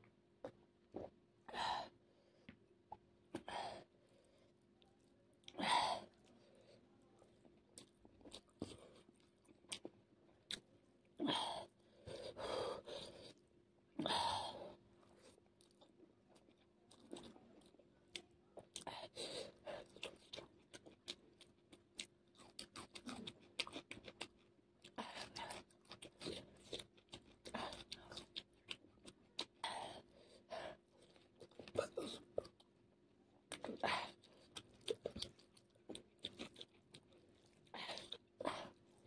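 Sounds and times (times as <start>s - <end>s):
person chewing with mouth clicks: 15.0s - 30.1s, 33.4s - 39.0s.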